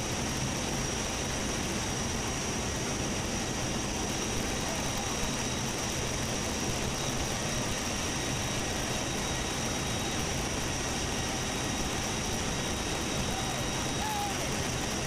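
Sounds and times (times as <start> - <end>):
constant high whine: 0.0 - 15.0
aircraft cabin roar: 4.4 - 15.0.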